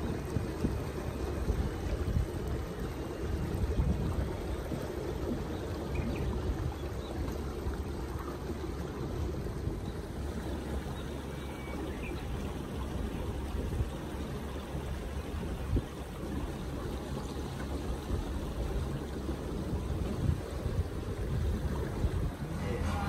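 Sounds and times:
water washing against boat hull: 0.0s - 23.0s
wind rumbling on microphone: 0.0s - 23.0s.

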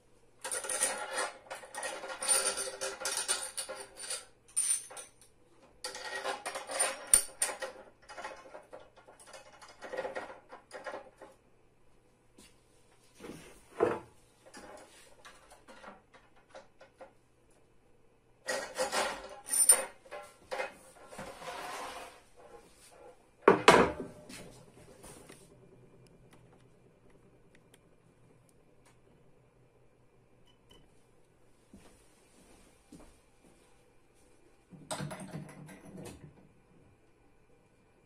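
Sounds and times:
metal and plastic parts clattering: 0.4s - 11.3s, 18.4s - 21.6s
short scrape: 21.2s - 22.3s.

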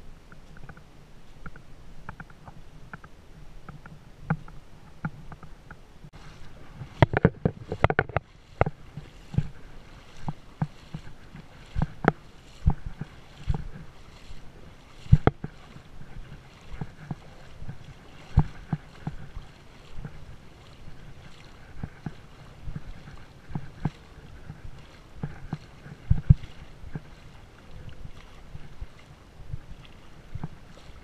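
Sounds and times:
steady water hiss: 0.0s - 31.0s
water splashing from wading: 0.1s - 31.0s
faint ticks: 0.3s - 5.8s, 6.8s - 14.4s.

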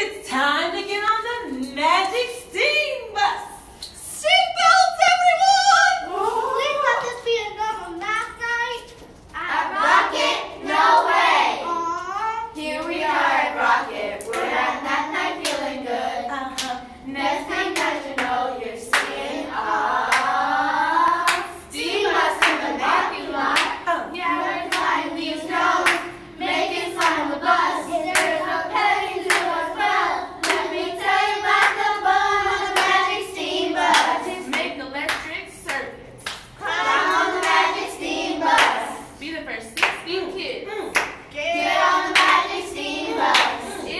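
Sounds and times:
children and adults singing: 4.4s - 6.8s, 9.4s - 39.2s, 39.8s - 43.9s
hands clapping: 29.3s - 29.5s, 30.4s - 31.8s.

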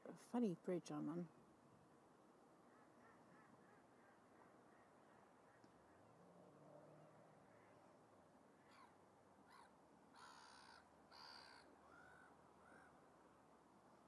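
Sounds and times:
faint bird calls: 2.6s - 6.3s, 6.9s - 13.1s.

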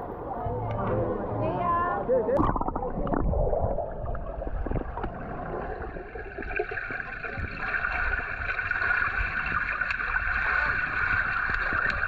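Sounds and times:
water gurgling and sloshing: 0.0s - 12.0s
low rumble: 2.4s - 6.4s.

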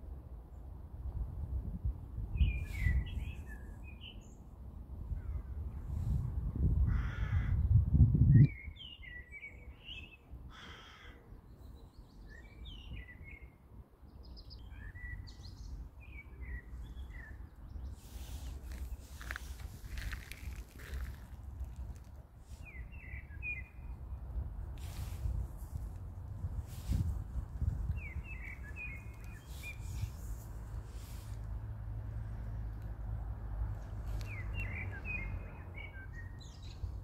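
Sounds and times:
birds chirping: 27.9s - 30.3s, 33.8s - 37.0s.

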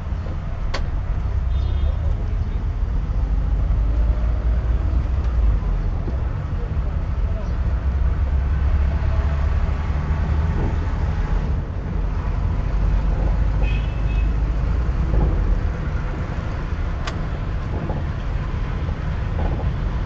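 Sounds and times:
car engine and tyres rumbling: 0.0s - 20.0s.

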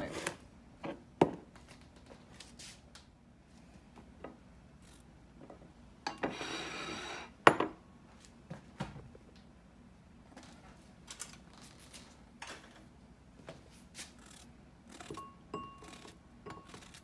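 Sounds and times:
ceramic bowl scraping countertop: 5.4s - 7.6s.

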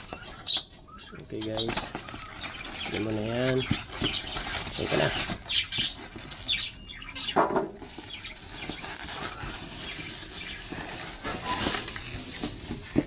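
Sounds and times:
squeaky cardboard bursts: 0.0s - 13.0s
cardboard scraping and rustling: 1.4s - 6.7s, 7.8s - 13.0s.

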